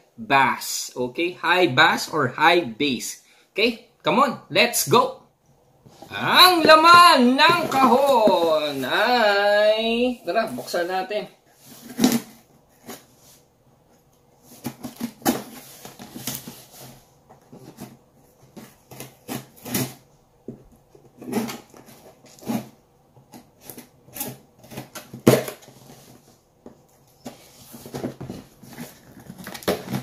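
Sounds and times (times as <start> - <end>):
tape and cardboard ripping: 18.8 - 20.0.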